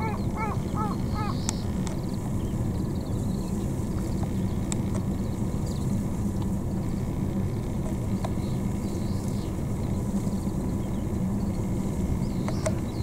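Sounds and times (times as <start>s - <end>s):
birds chirping: 0.0s - 13.0s
low rumble: 0.0s - 13.0s.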